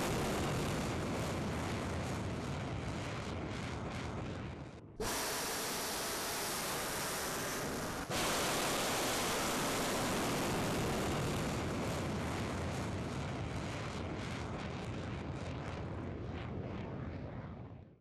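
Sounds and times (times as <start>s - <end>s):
rocket crackle: 0.0s - 17.2s
rocket motor rushing: 5.0s - 11.8s.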